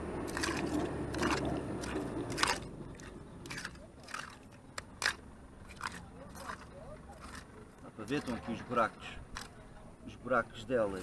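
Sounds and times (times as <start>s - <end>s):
metal tool scraping wet mud: 0.2s - 9.6s.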